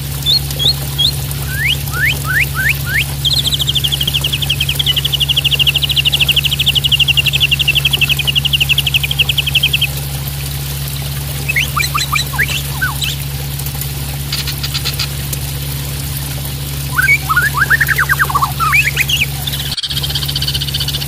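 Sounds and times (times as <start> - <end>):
falling water rushing: 0.0 - 21.0
bird singing whistles and trills: 0.2 - 10.0, 11.4 - 13.2, 16.9 - 21.0.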